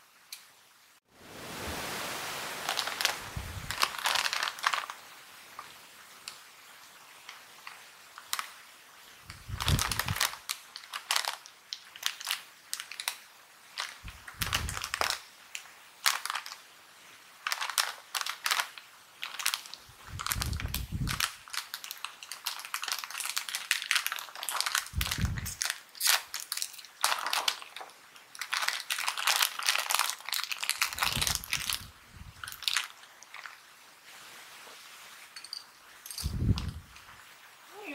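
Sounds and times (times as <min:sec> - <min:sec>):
bag tearing open: 0:02.6 - 0:05.0, 0:09.5 - 0:13.2, 0:13.8 - 0:15.2, 0:17.4 - 0:33.6
snack bag crinkling: 0:02.6 - 0:06.4, 0:07.3 - 0:08.6, 0:09.3 - 0:16.7, 0:17.4 - 0:33.7.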